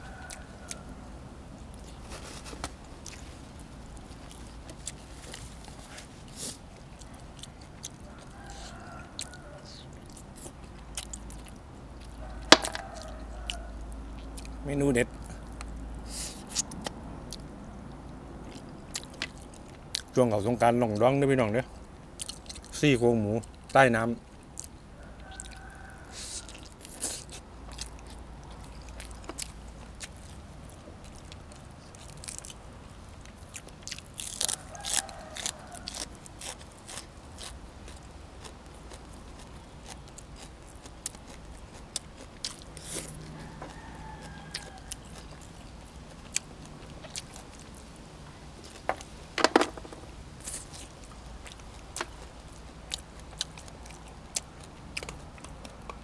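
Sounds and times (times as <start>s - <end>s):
person chewing food: 0.0s - 0.9s, 1.7s - 20.2s, 21.7s - 22.8s, 23.4s - 56.0s
loud crunch: 12.5s - 13.2s.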